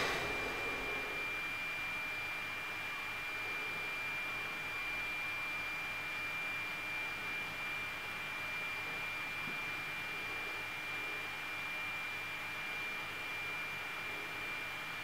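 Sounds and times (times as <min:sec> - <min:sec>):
steady background hiss: 0:00.0 - 0:01.3
thin high whine: 0:00.0 - 0:01.4.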